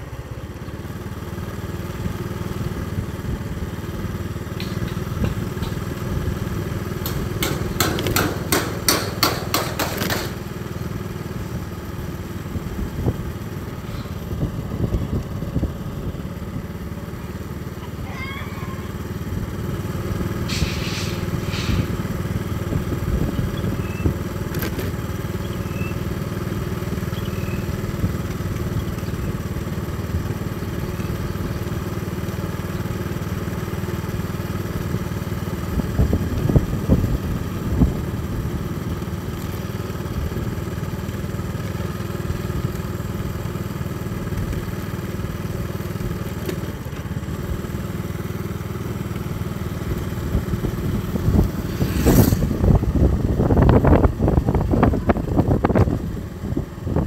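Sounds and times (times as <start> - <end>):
motorcycle engine cruising: 0.0 - 57.0.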